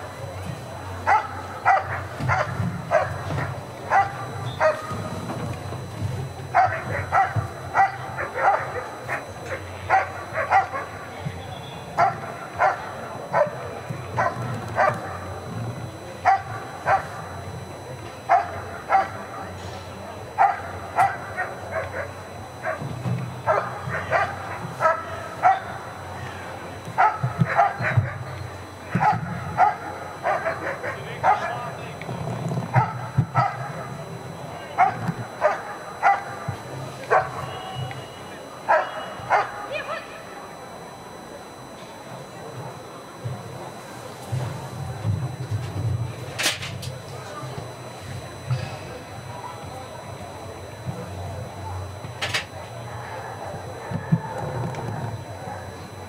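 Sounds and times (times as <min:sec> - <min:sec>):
dog barking: 0:01.1 - 0:04.9, 0:06.5 - 0:11.0, 0:12.0 - 0:15.2, 0:16.2 - 0:17.2, 0:18.3 - 0:19.2, 0:20.4 - 0:22.9, 0:23.5 - 0:25.8, 0:27.0 - 0:28.3, 0:29.0 - 0:31.7, 0:32.7 - 0:33.8, 0:34.8 - 0:36.4, 0:37.1 - 0:37.5, 0:38.7 - 0:40.0.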